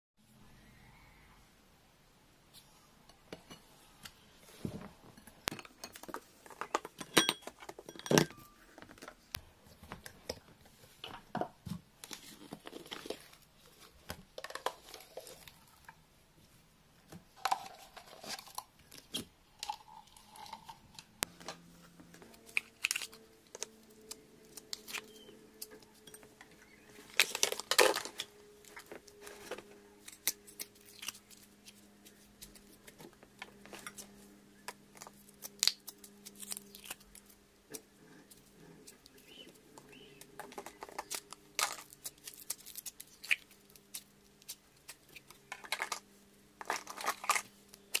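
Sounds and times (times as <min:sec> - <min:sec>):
lids clicking against glass bowl: 0:06.9 - 0:08.5.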